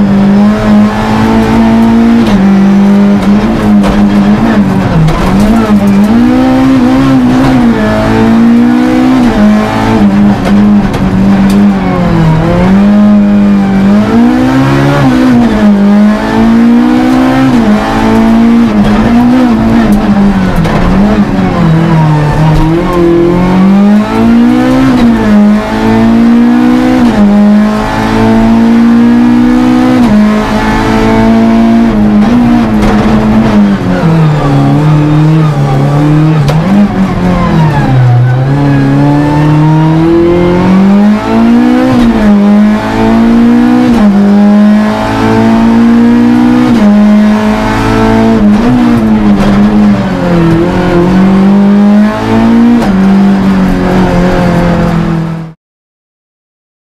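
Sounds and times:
car engine accelerating through gears: 0.0s - 55.6s.

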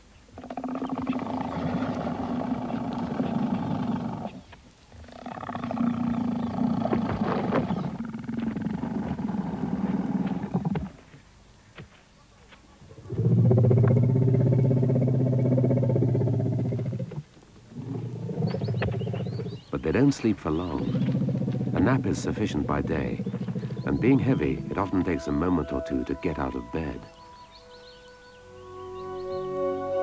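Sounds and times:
elephant snoring: 0.4s - 4.5s, 5.1s - 11.0s, 13.1s - 25.5s.

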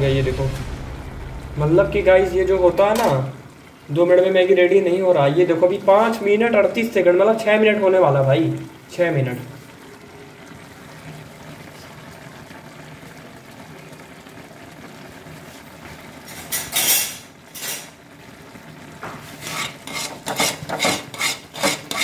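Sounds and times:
pan simmering: 0.0s - 22.0s
steel spoon scraping a frying pan: 16.3s - 18.0s, 19.3s - 22.0s.

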